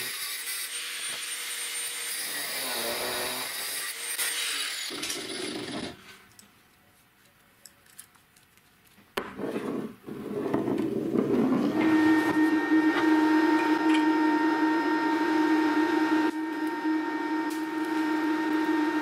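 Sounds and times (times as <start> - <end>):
angle grinder cutting steel: 0.0 - 5.9, 11.7 - 19.0.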